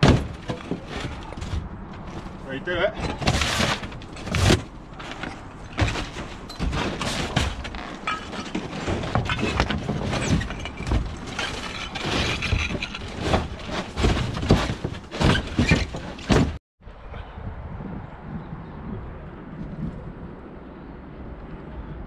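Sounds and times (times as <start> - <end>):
cracks bangs and clattering knocks: 0.0 - 2.4, 3.0 - 16.6
outdoor background: 0.0 - 22.0
boards ripped and breaking: 3.1 - 16.6.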